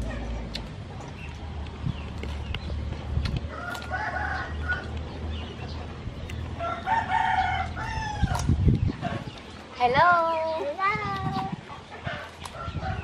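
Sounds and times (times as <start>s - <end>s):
rooster crowing: 3.5s - 4.9s, 6.6s - 8.4s.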